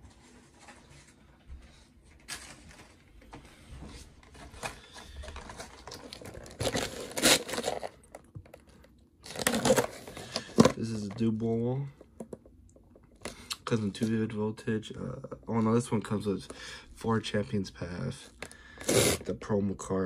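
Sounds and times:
plastic packaging rustling: 2.1s - 11.4s.

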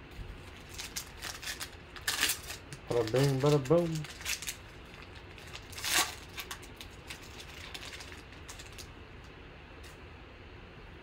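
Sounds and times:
foil pack rustling: 0.4s - 8.9s.

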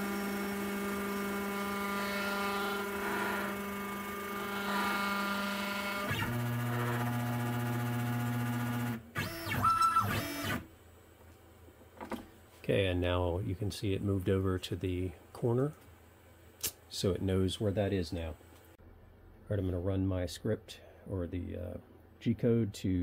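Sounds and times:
stepper motors whining: 0.0s - 10.7s.

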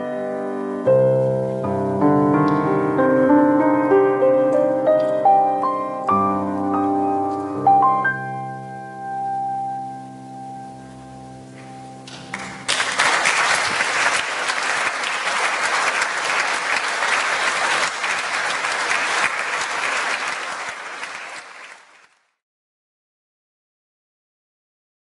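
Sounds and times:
grand piano chord: 0.0s - 12.7s
audience applause: 12.2s - 22.4s.

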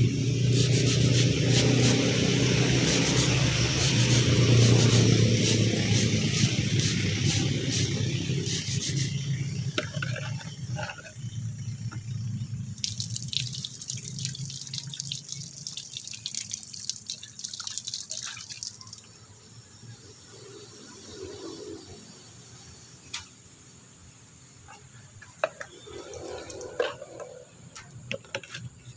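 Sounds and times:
water pouring and splashing: 12.8s - 19.2s.

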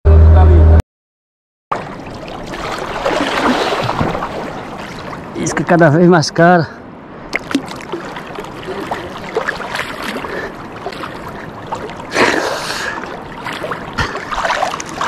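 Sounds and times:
water lapping against kayak hull: 1.7s - 5.4s, 7.3s - 15.0s
swish of water: 1.7s - 5.5s, 7.3s - 15.0s.

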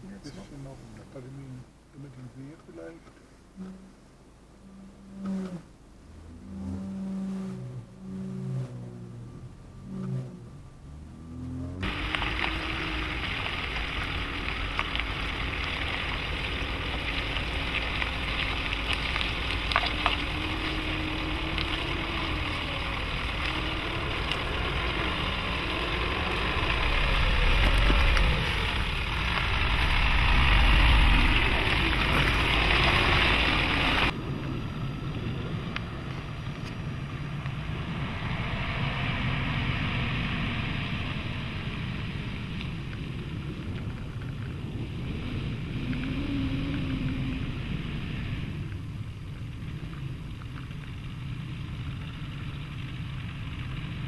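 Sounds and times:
wind noise on microphone: 11.8s - 51.8s.

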